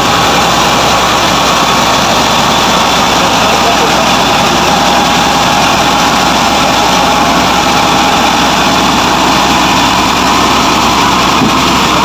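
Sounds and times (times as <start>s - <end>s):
combine harvester running: 0.0s - 12.0s
grain pouring into trailer: 0.0s - 12.0s.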